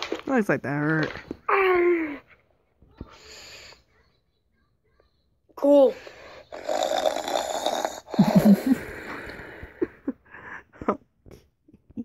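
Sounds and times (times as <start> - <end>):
person laughing breathily: 8.1 - 11.5.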